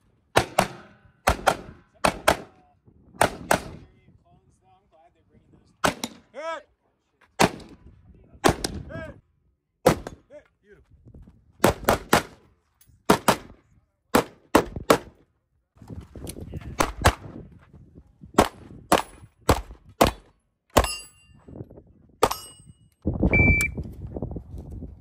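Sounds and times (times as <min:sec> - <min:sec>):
gunshots: 0:00.4 - 0:02.5, 0:03.2 - 0:03.8, 0:05.8 - 0:06.3, 0:07.4 - 0:07.8, 0:08.4 - 0:08.8, 0:09.8 - 0:10.2, 0:11.6 - 0:12.4, 0:13.1 - 0:15.1
steel targets ringing: 0:20.8 - 0:21.4.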